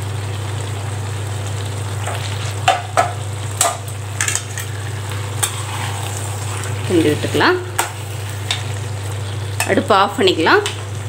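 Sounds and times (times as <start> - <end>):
steady low hum: 1.0 - 11.0
spatula scraping steel pan: 5.4 - 7.1.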